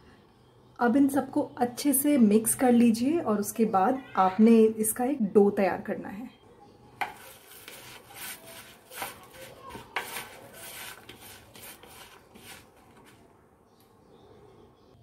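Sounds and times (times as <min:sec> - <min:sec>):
fingers scraping plastic bowl: 0:07.0 - 0:13.2.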